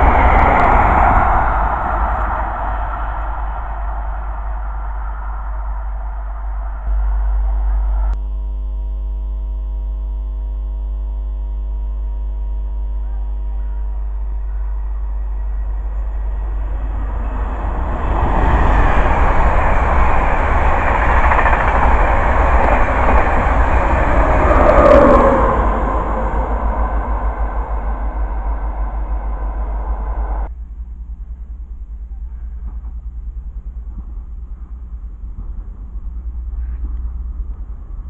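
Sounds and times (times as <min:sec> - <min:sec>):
train wheels rushing on rail: 0:00.0 - 0:08.2, 0:13.6 - 0:30.5
faint high whine: 0:00.0 - 0:38.0
steady multi-tone hum: 0:00.0 - 0:38.0.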